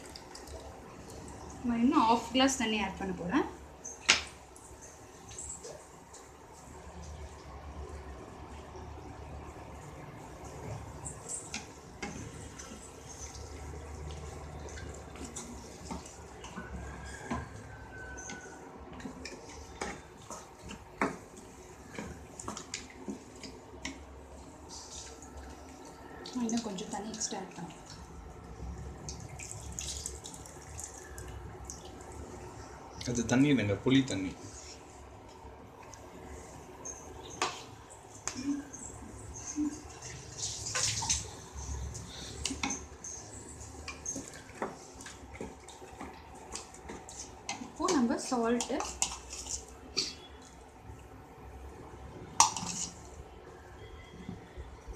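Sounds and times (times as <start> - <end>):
spoon stirring gravy: 10.4 - 28.2, 34.0 - 50.7, 52.3 - 53.2.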